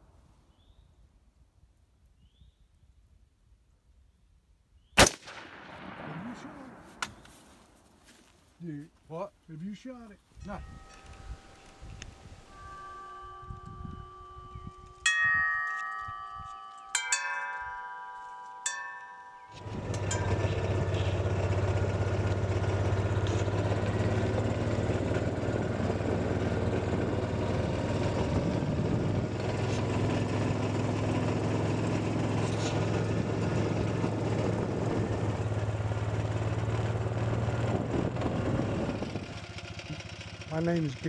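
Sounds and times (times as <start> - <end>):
utility vehicle engine running: 19.5 - 41.0.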